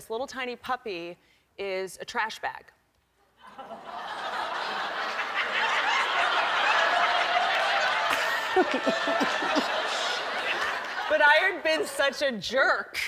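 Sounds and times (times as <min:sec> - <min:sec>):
studio audience laughing: 0:03.4 - 0:12.2.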